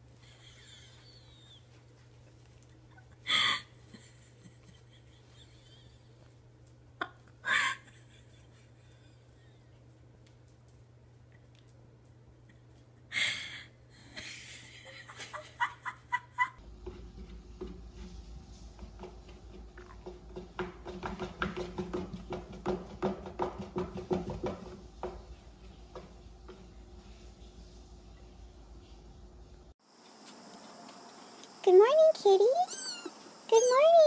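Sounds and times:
cat chirping: 0:32.6 - 0:33.9.

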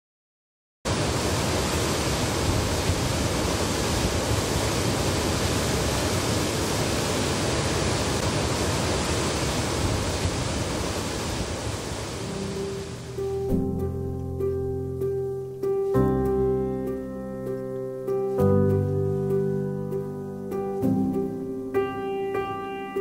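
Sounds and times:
water rushing over weir: 0:00.9 - 0:13.5.

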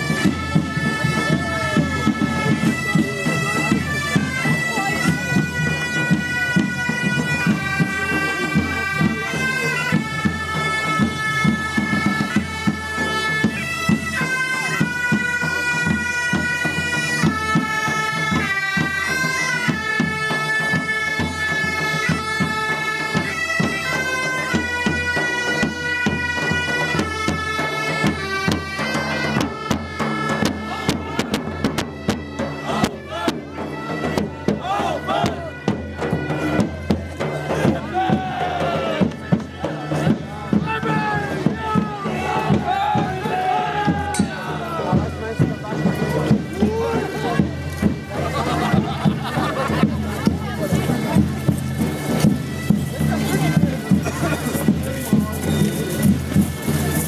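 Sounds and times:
bagpipes playing a tune: 0:00.0 - 0:57.0
drumbeat thumping: 0:24.5 - 0:57.0.

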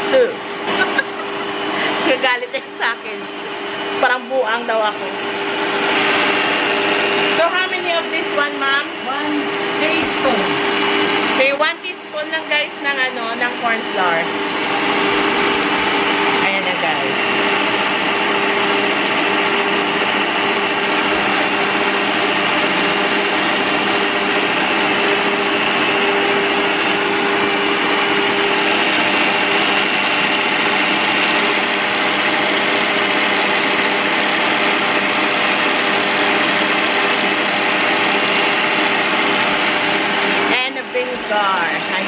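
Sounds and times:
stand mixer motor humming: 0:00.0 - 0:42.0
whisk beating egg whites: 0:14.3 - 0:40.5.

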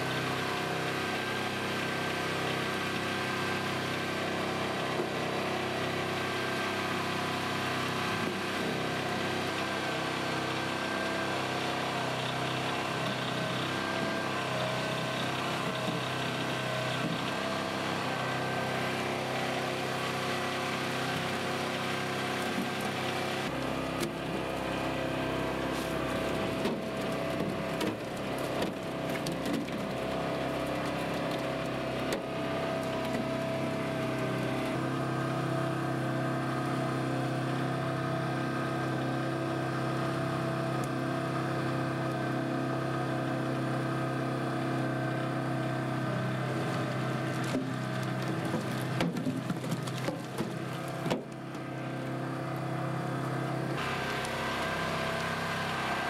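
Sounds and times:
boat engine droning: 0:01.2 - 0:39.9, 0:50.1 - 0:56.0
hydraulic net reel running: 0:46.0 - 0:56.0.

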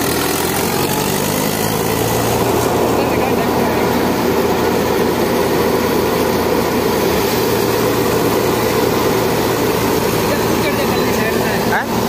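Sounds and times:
thresher drum whirring: 0:00.0 - 0:12.0
tractor diesel engine running: 0:00.0 - 0:12.0.

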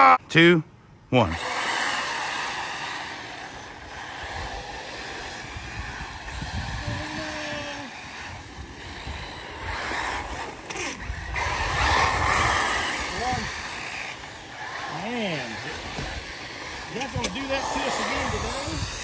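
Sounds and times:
tyres on dirt: 0:01.2 - 0:19.0
electric motors whining: 0:01.3 - 0:19.0
wind on the microphone: 0:03.9 - 0:13.9, 0:15.8 - 0:19.0.

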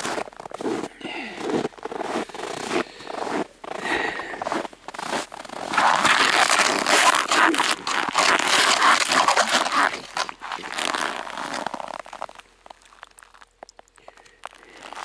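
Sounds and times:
ice scoop scraping slush: 0:04.9 - 0:12.4.

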